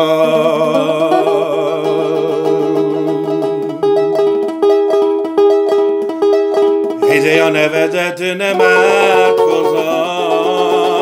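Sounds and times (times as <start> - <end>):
man singing held note: 0.0 - 3.2, 7.0 - 11.0
acoustic guitar plucking: 0.0 - 11.0.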